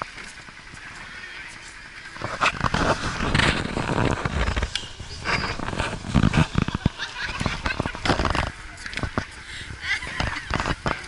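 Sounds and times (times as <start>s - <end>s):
microphone rumbling and buffeting: 0.0s - 11.0s
knocks and crackles: 1.6s - 9.4s, 10.0s - 11.0s.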